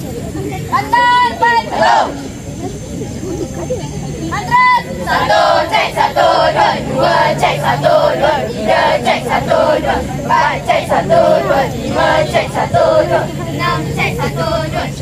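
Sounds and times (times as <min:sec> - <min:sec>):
students chanting a cheer: 0:00.8 - 0:02.3, 0:04.5 - 0:15.0.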